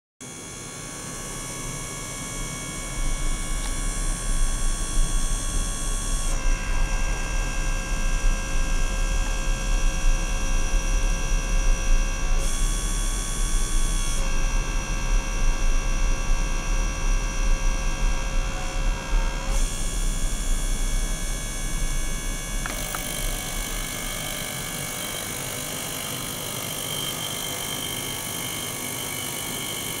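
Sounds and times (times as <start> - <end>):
ultrasonic cleaner hum: 0.2 - 30.0
gear pump motor running: 2.1 - 7.8, 12.2 - 30.0
steady high tones: 21.8 - 30.0.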